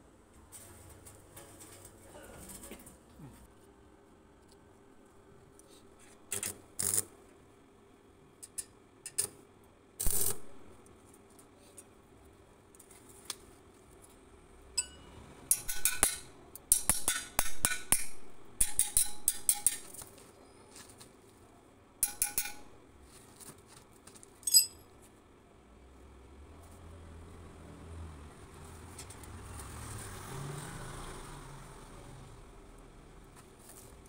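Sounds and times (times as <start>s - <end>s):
metal knocking and clinking: 22.0s - 22.7s, 24.4s - 24.8s.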